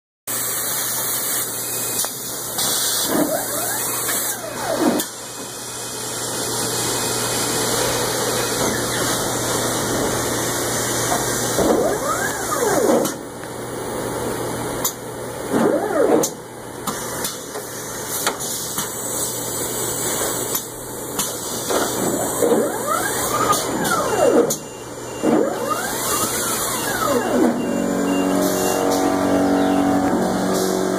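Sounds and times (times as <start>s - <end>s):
conveyor machinery running: 0.3s - 30.9s
drive whining: 22.2s - 30.9s.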